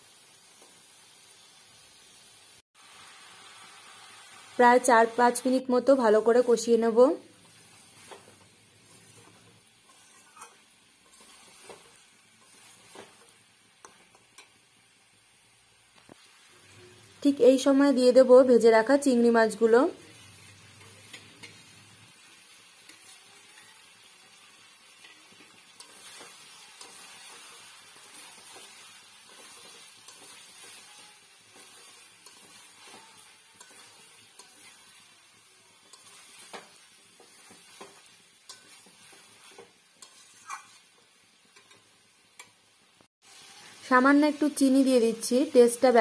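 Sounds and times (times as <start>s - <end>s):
low sizzle: 0.0s - 46.0s
spatula scraping food in pan: 6.1s - 14.8s, 20.0s - 42.6s
spatula clicking against pan: 41.5s - 42.6s.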